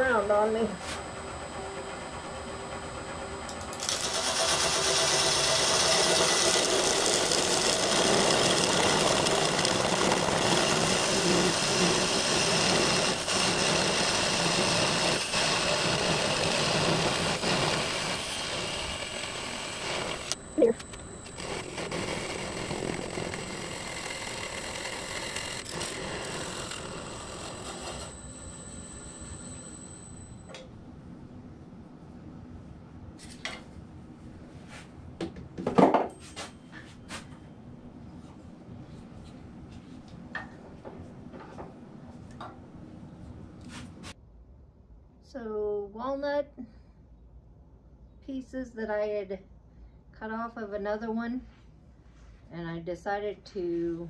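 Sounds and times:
wood lathe whine: 0.0 - 30.6
turning tool scraping wood: 3.8 - 28.2.

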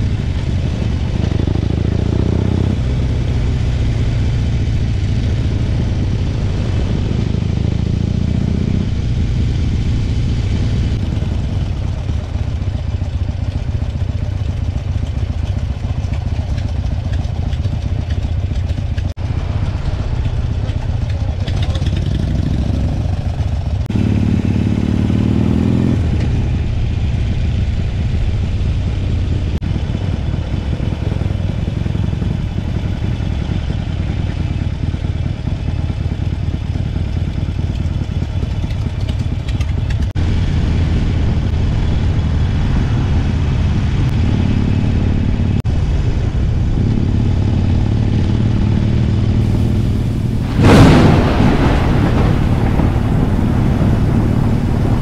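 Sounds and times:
vehicle engine running: 0.0 - 55.0
loud rush of noise: 49.3 - 55.0.

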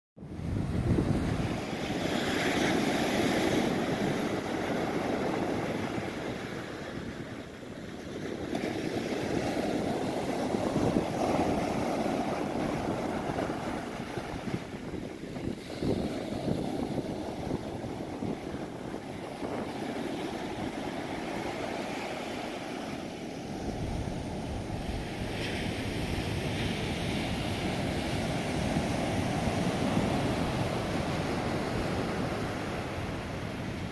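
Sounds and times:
wind rumbling on microphone: 0.2 - 33.9
surf breaking on beach: 8.3 - 33.9.

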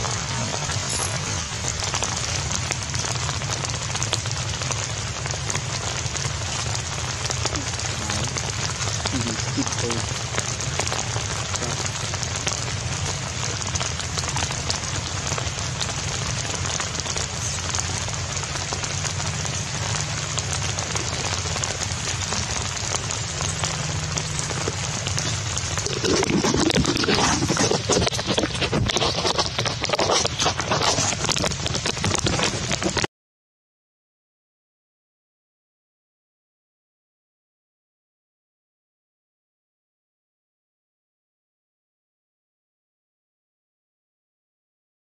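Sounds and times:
rain on grass and stone: 0.0 - 33.1
sharp crackles: 0.0 - 33.1.

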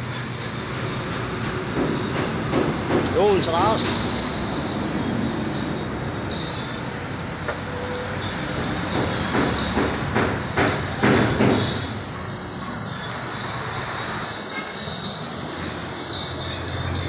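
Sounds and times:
steady mechanical noise: 0.0 - 17.0
loud knocks: 1.8 - 3.2, 8.6 - 11.9.

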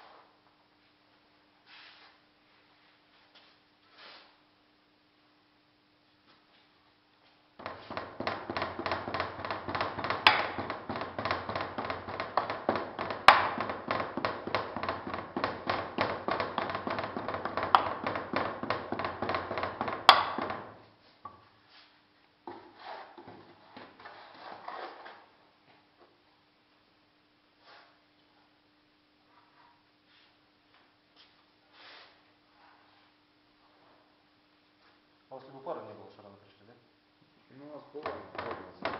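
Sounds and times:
louder knocks: 7.6 - 20.8, 38.0 - 38.9.

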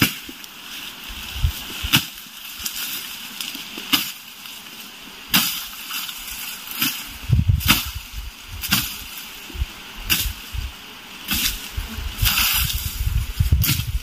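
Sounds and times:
blade chopping grass stalks: 0.0 - 0.4, 1.5 - 4.3, 5.3 - 9.3, 10.0 - 10.5, 11.2 - 14.0
grass rustling: 0.0 - 14.0.

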